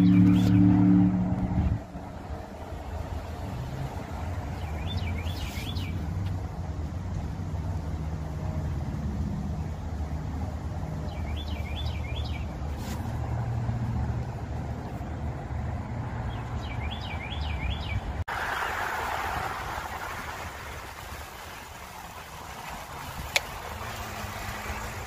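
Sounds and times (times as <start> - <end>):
bird chirping: 0.0 - 0.8, 4.6 - 6.1, 11.0 - 12.5, 16.3 - 18.2
bike tyres rolling on pavement: 16.6 - 25.0.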